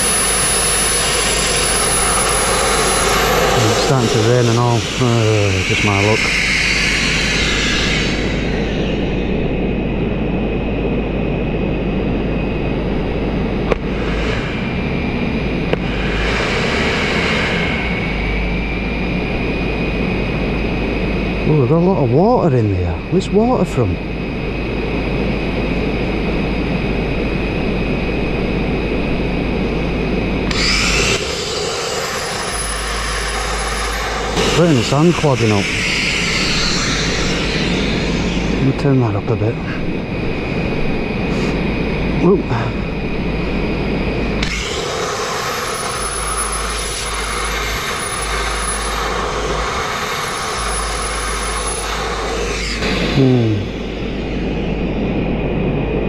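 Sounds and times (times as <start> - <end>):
sandblasting nozzle hissing: 30.5 - 38.7
sandblaster hissing: 30.5 - 39.0, 44.4 - 53.6.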